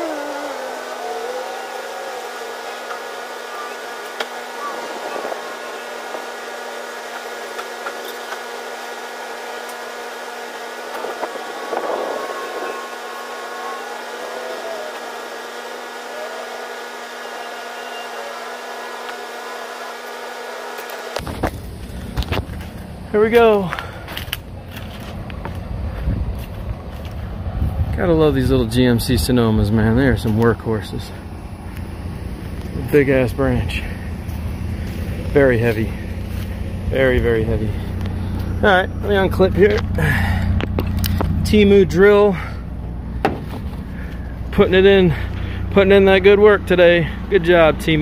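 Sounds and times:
faint rising and falling whistles: 0:00.0 - 0:06.8, 0:11.0 - 0:21.1
drone of held tones: 0:00.0 - 0:21.3, 0:30.8 - 0:43.2.

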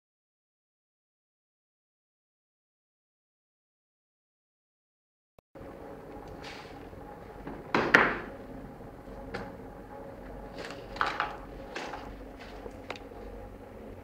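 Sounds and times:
faint room hum: 0:05.6 - 0:14.0.

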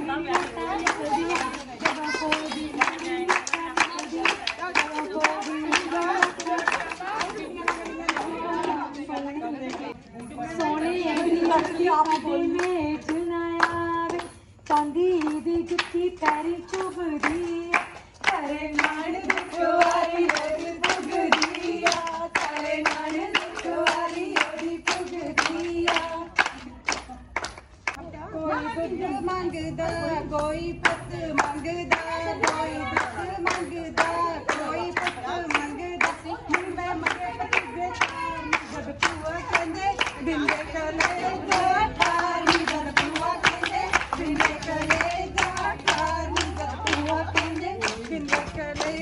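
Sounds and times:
women singing folk song: 0:00.0 - 0:26.8, 0:28.0 - 0:49.0
rhythmic hand clapping: 0:00.0 - 0:49.0.

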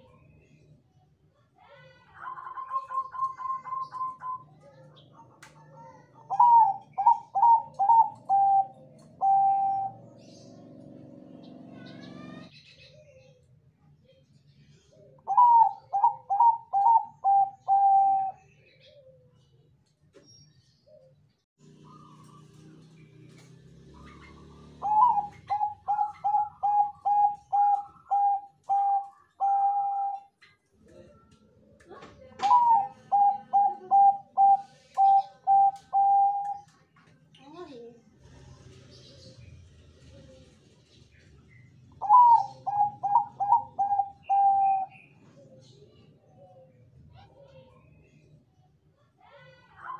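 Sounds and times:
dove cooing: 0:02.2 - 0:05.2, 0:06.0 - 0:11.1, 0:14.9 - 0:19.4, 0:21.7 - 0:31.3, 0:32.2 - 0:36.8, 0:41.9 - 0:47.6.

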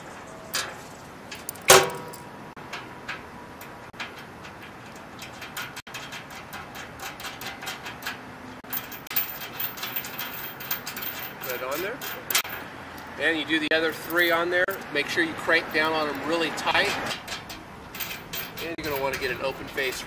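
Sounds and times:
metallic clank: 0:00.1 - 0:12.7, 0:17.1 - 0:20.0
metal bolts clinking: 0:00.3 - 0:12.7, 0:13.7 - 0:15.0, 0:16.8 - 0:20.0.

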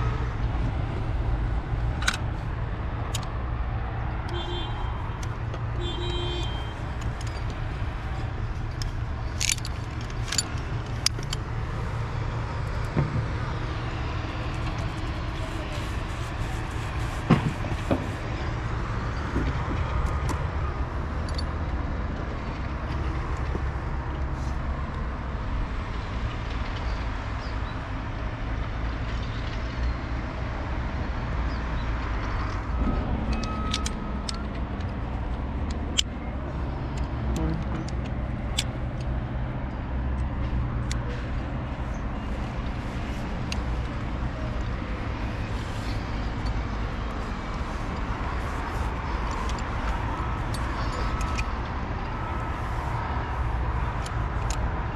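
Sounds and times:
tools clicking and knocking: 0:01.7 - 0:02.5, 0:05.1 - 0:13.4, 0:21.1 - 0:23.7, 0:33.2 - 0:54.7.

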